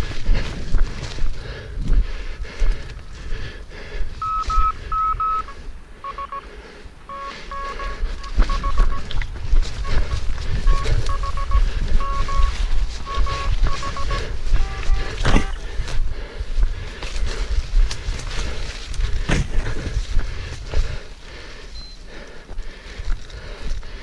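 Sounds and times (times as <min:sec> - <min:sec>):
morse code beeps: 0:04.2 - 0:06.5, 0:07.1 - 0:09.2, 0:09.8 - 0:15.6, 0:21.8 - 0:22.0
thumping and rumble of running: 0:15.2 - 0:21.1.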